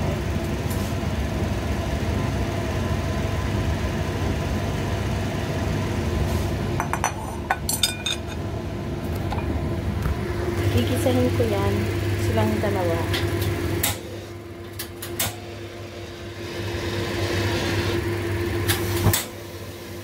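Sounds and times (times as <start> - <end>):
steady mechanical hum: 0.0 - 20.0
spoon clinking ceramic bowl: 6.8 - 8.4.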